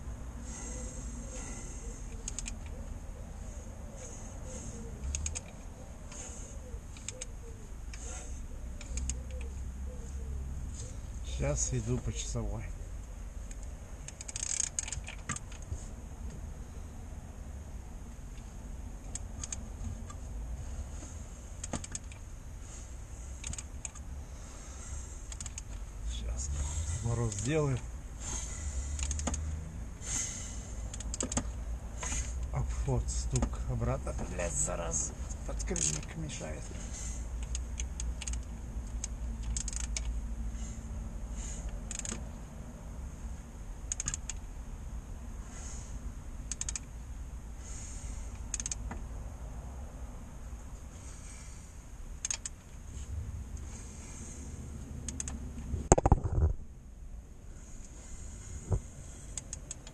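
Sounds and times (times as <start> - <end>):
steady low hum: 0.0 - 59.9
metallic clicks of turning crankshaft: 2.1 - 2.8, 5.0 - 6.2, 8.8 - 9.5, 13.5 - 15.7, 25.3 - 25.8, 37.4 - 40.2, 41.7 - 42.2, 43.9 - 44.4, 46.4 - 46.9, 48.3 - 48.9, 52.2 - 52.6.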